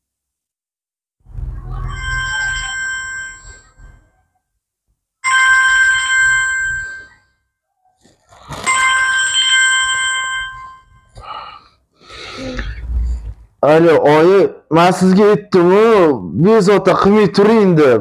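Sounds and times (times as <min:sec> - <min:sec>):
mobile phone ringtone: 0:01.7 - 0:04.2, 0:05.2 - 0:07.4, 0:08.5 - 0:11.2.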